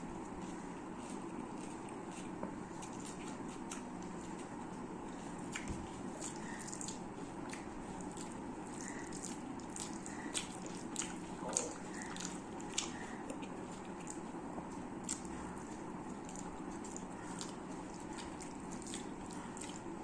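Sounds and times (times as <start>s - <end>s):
wet chewing smacks: 0.2s - 20.0s.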